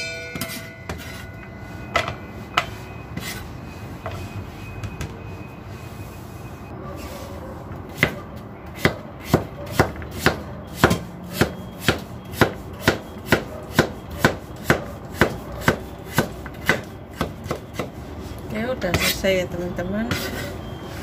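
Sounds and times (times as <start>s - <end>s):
knife chopping on cutting board: 7.9s - 8.2s, 8.8s - 17.9s.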